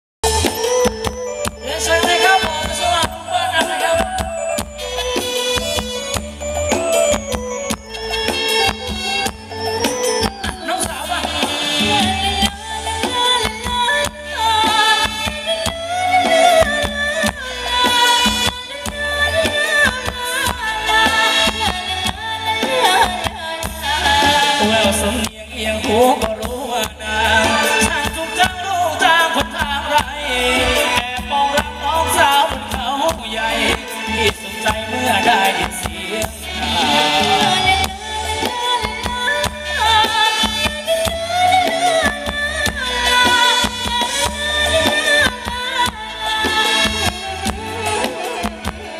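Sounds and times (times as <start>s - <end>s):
keyboard: 0.2s - 48.9s
live dance band playing: 0.2s - 48.9s
steady drum beat: 0.2s - 48.9s
woman singing: 1.4s - 4.8s, 8.6s - 48.9s.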